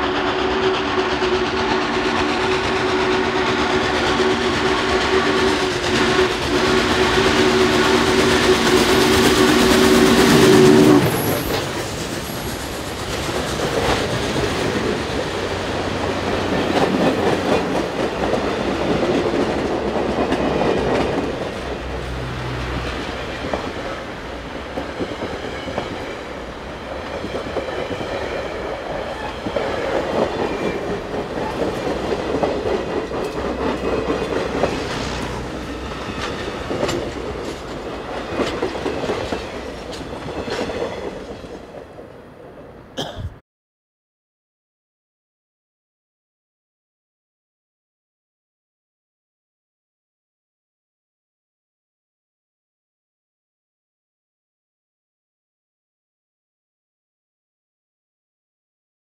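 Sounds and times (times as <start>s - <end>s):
train wheels rumbling on rails: 0.0s - 43.4s.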